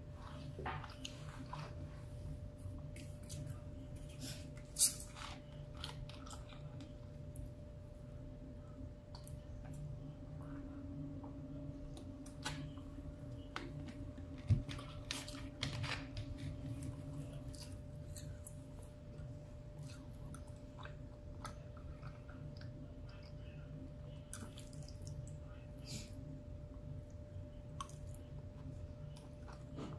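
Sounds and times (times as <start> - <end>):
faint steady hum: 0.0 - 29.9
person chewing food: 2.7 - 7.4, 11.9 - 25.6, 27.5 - 29.9.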